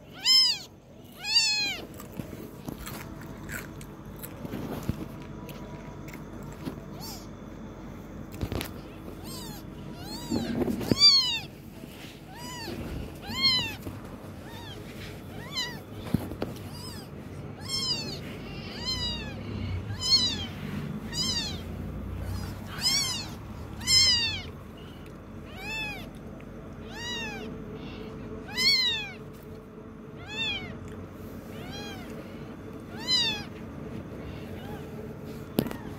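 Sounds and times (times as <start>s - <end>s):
kitten mewing: 0.0s - 2.2s, 6.8s - 7.4s, 8.4s - 11.6s, 12.2s - 26.2s, 26.8s - 29.3s, 30.2s - 35.9s.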